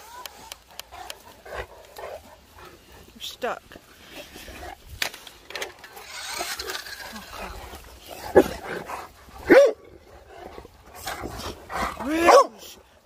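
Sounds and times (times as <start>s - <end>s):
dog barking: 9.5s - 9.8s, 12.2s - 12.6s.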